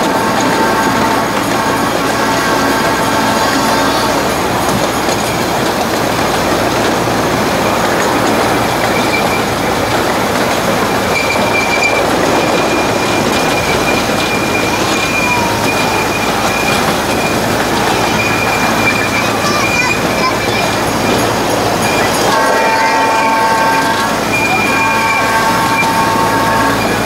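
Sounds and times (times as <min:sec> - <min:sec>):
train wheels rumbling on rails: 0:00.0 - 0:27.0
high-pitched wheel squeal: 0:10.8 - 0:27.0.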